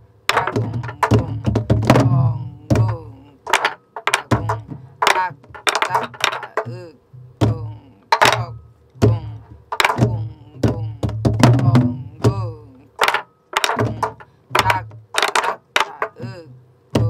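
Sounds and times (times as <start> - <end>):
person vocalizing: 0.3 - 3.5, 4.2 - 13.0, 15.8 - 16.6
barrel drum thumps and stick cracks: 0.3 - 6.7, 7.4 - 12.4, 13.0 - 16.2.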